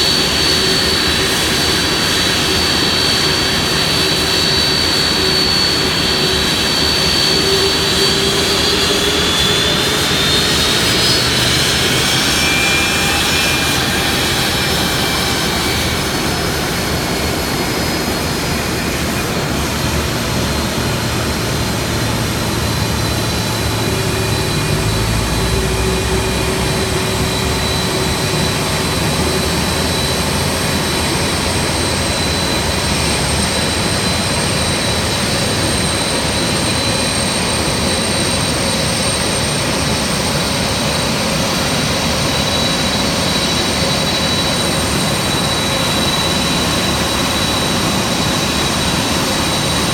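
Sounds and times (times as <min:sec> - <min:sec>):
jet engines whining: 0:00.0 - 0:49.9.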